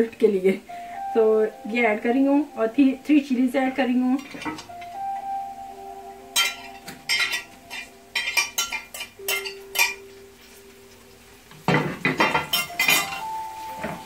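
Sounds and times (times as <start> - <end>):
knife clinking on metal tray: 6.4 - 10.0, 12.0 - 13.3.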